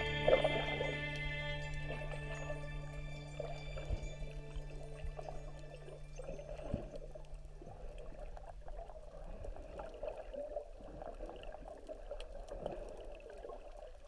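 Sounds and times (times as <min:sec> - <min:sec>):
crackle: 0:00.0 - 0:14.0
muffled underwater movement: 0:00.0 - 0:14.0.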